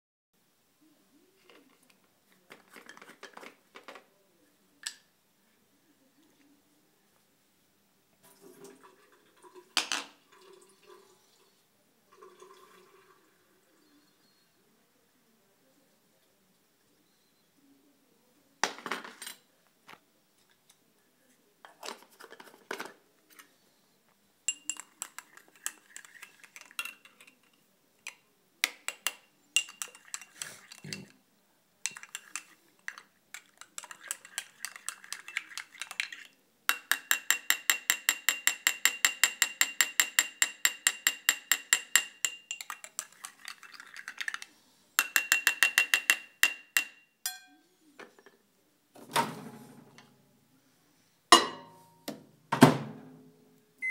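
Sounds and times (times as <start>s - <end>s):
spoon clinking against glass: 24.5s - 27.4s, 28.9s - 31.1s, 31.9s - 33.0s, 33.6s - 43.8s, 45.0s - 47.6s.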